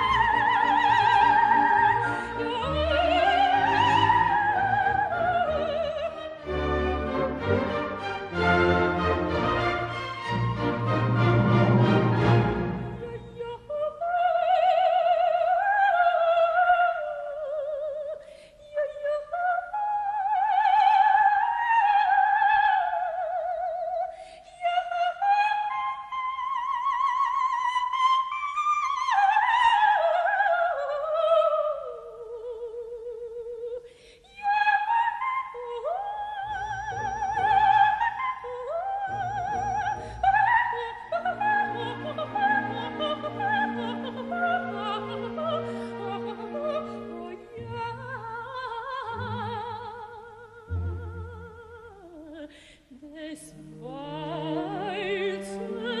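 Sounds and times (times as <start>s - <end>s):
soprano singing with vibrato: 0.0s - 10.7s, 11.9s - 56.0s
soft orchestra: 0.0s - 33.8s, 34.4s - 56.0s
singer breathing: 18.2s - 18.6s, 24.1s - 24.5s, 33.8s - 34.3s, 52.5s - 52.9s.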